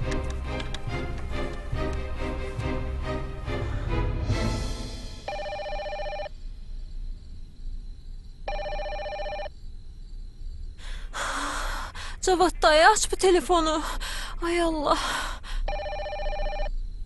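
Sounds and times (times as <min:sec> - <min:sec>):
music: 0:00.0 - 0:05.5
landline telephone ringing: 0:05.3 - 0:06.3, 0:08.5 - 0:09.5, 0:15.7 - 0:16.7.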